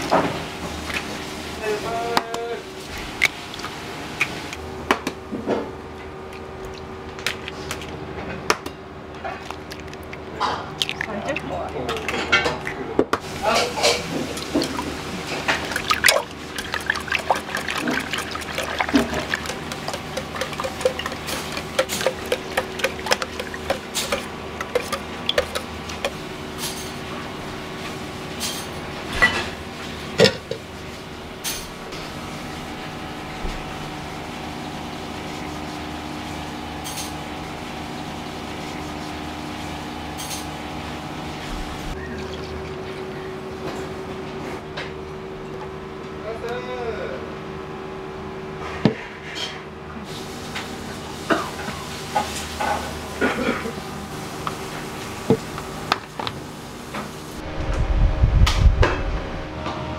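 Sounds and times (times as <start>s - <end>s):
whisk beating eggs in metal pot: 14.4s - 26.3s
egg strained through sieve: 14.4s - 26.7s.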